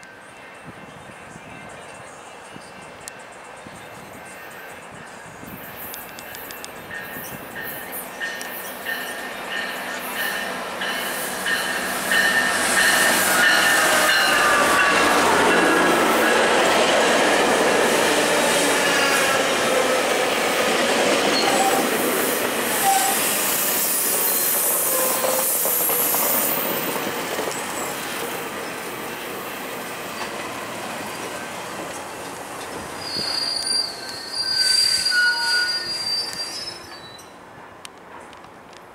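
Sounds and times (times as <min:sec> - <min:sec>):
train brakes squealing: 0:00.0 - 0:16.7, 0:20.9 - 0:28.8, 0:32.9 - 0:37.4
train wheels rumbling on rail: 0:00.0 - 0:38.9.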